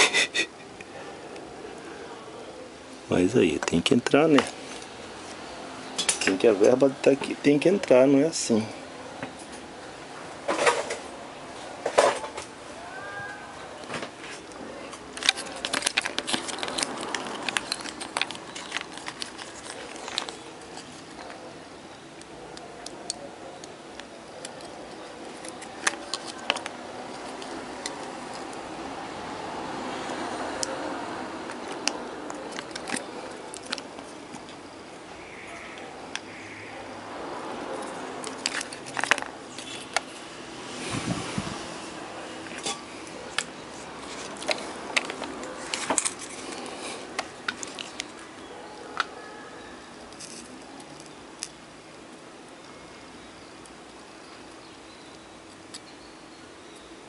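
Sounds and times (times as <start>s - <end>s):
tools clicking and clinking: 14.4s - 21.4s.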